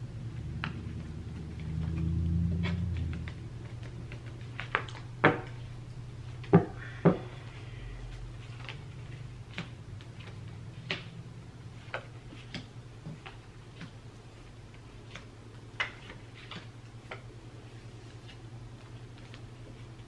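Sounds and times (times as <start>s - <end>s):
low hum: 0.0s - 20.0s
cards being dealt: 8.4s - 14.0s, 14.7s - 17.3s.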